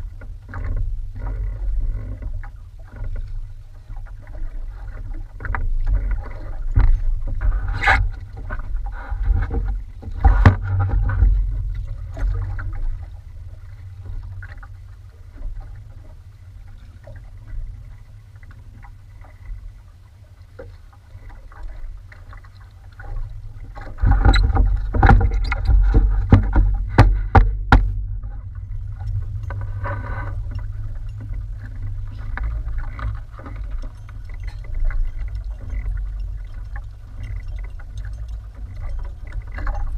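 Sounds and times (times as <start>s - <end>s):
heavy steady rumble: 0.0s - 39.9s
water slapping against hull: 0.0s - 39.9s
sharp knocks on boat: 9.3s - 12.9s, 23.8s - 28.4s.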